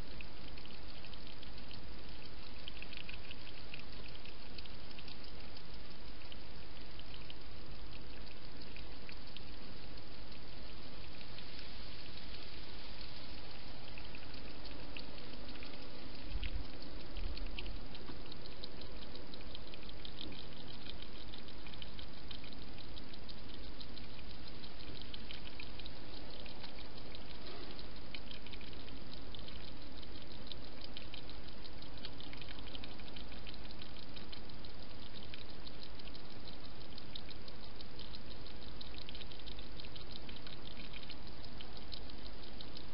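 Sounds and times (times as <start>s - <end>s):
hedgehog clicking while feeding: 0.0s - 42.9s
steady hiss: 0.0s - 42.9s.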